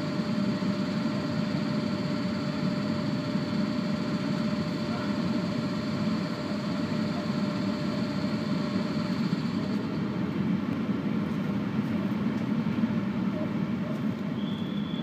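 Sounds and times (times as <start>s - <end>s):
locomotive machinery humming: 0.0s - 15.0s
faint high whine: 14.3s - 15.0s.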